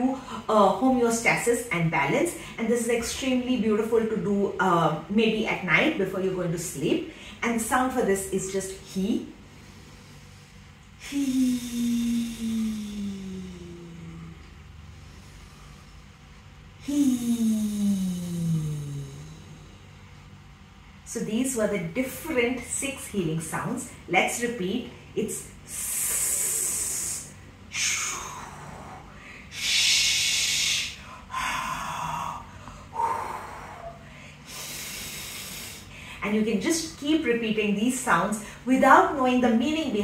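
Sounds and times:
woman breathy exhalations: 9.6s - 16.1s, 16.8s - 19.7s, 25.7s - 36.2s.

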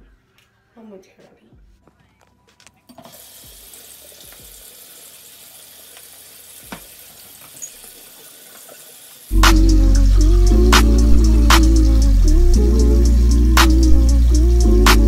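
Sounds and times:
tap running into sink: 5.9s - 8.8s.

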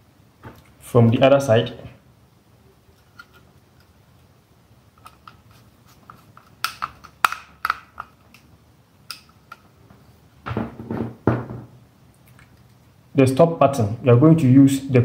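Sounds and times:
clatter of handling parts: 3.0s - 4.0s
small clicks and knocks of handling: 5.0s - 10.0s.

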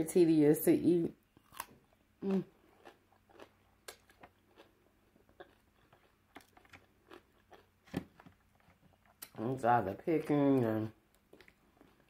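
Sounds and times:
crab shell cracking and chewing: 1.4s - 9.4s.

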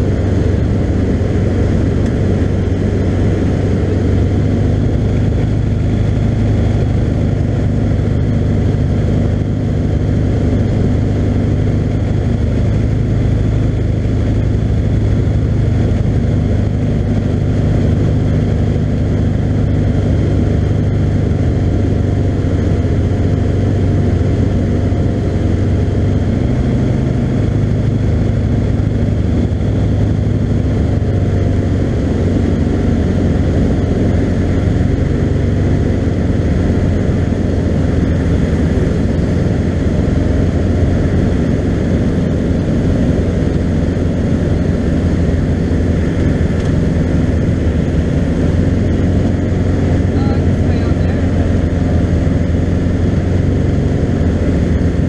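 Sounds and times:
aircraft engine and propeller droning: 0.0s - 55.0s.

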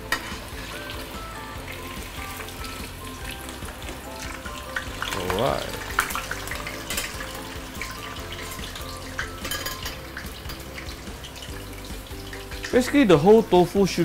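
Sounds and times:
background music: 0.0s - 14.0s
tofu sizzling in hot oil: 0.0s - 14.0s
metal spatula clinking on pan: 9.2s - 10.6s.

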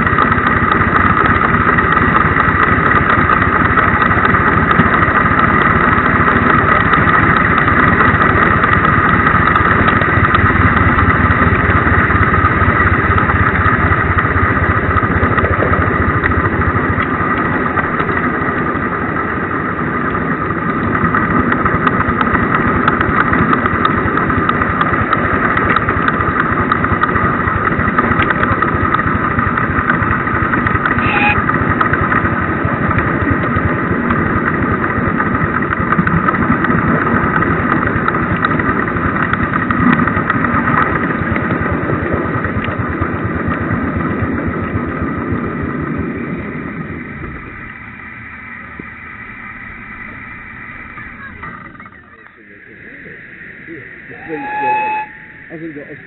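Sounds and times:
steam locomotive rapid beats: 0.0s - 56.0s
steady high tones: 31.0s - 31.4s, 48.6s - 56.0s.

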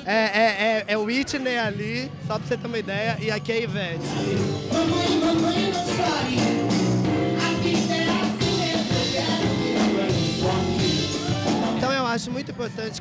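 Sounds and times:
live band with drums: 0.0s - 13.0s
vocalists singing: 4.0s - 11.9s.

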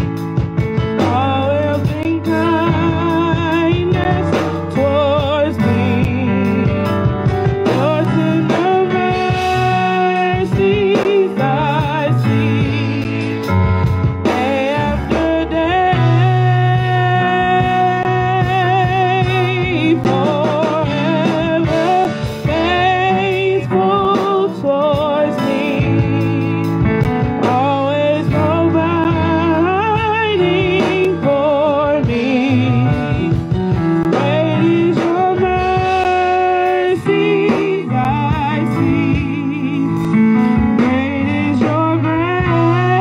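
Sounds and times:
sustained instrumental backing: 0.0s - 43.0s
group singing gospel song: 14.2s - 26.8s, 34.1s - 43.0s.

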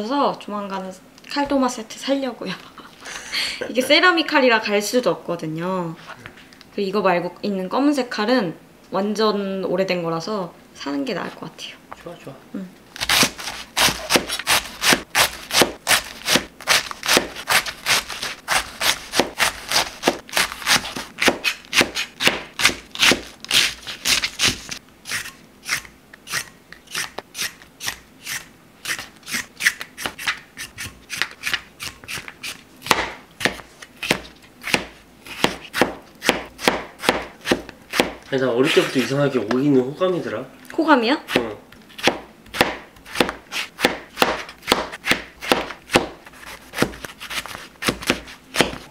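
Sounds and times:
knife cutting on cutting board: 13.0s - 39.2s, 41.3s - 48.9s.

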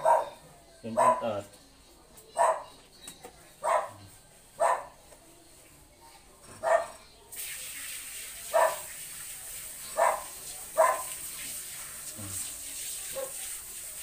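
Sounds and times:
dog barking: 0.0s - 1.4s, 2.4s - 2.8s, 3.6s - 5.0s, 6.6s - 7.0s, 8.5s - 8.9s, 10.0s - 11.2s, 13.1s - 13.4s
hose nozzle spraying water: 7.3s - 14.0s.

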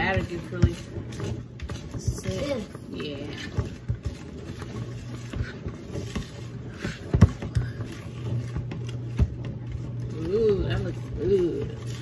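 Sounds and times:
low steady hum: 0.0s - 12.0s
whisk scraping batter in bowl: 0.0s - 12.0s.

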